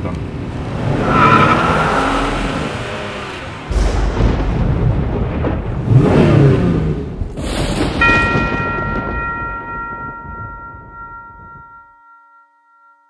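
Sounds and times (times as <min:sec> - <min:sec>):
car engine revving past: 0:00.4 - 0:04.5.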